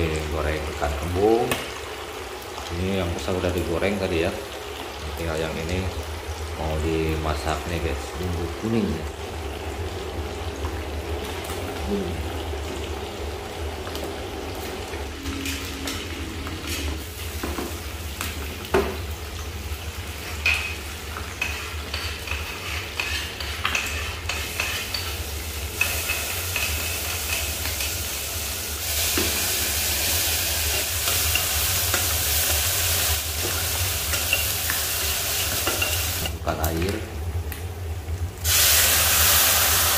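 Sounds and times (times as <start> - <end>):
fish sizzling in frying pan: 0.0 - 36.3, 38.4 - 39.9
metal spatula scraping saucepan: 21.4 - 25.1.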